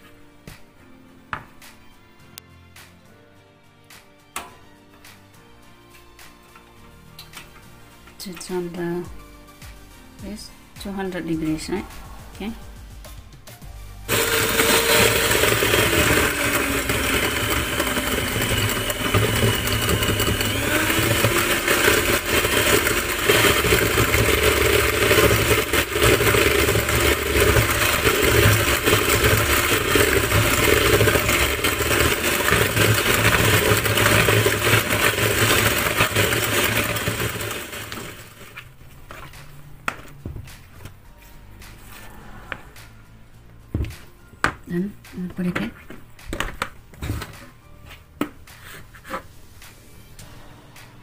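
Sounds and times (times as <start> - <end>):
electric hand mixer whirring: 14.1 - 38.6.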